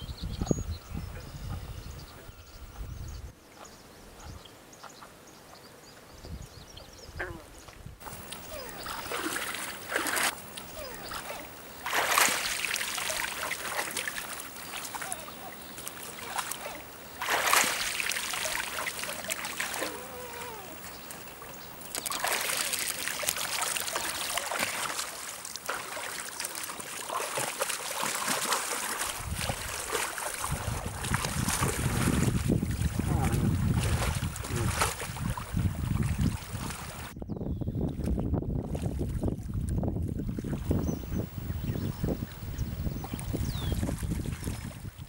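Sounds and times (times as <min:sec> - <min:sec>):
wind buffeting microphone: 0:00.0 - 0:03.4, 0:06.2 - 0:08.9, 0:29.1 - 0:45.0
water splashing with steps: 0:08.0 - 0:37.2.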